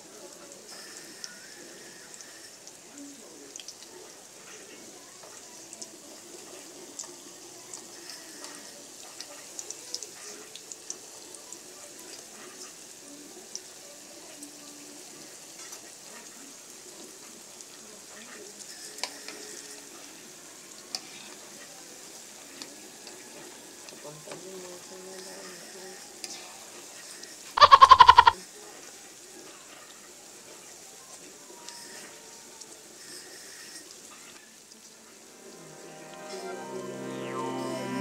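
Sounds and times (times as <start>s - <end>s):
oil sizzling and popping: 0.0s - 36.4s.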